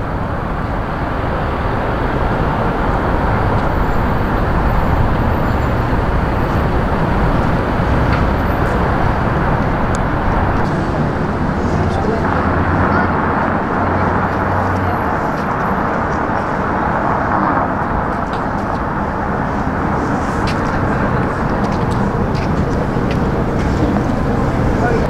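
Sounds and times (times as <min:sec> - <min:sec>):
low engine hum: 0:00.0 - 0:25.0
passing vehicles: 0:00.0 - 0:25.0.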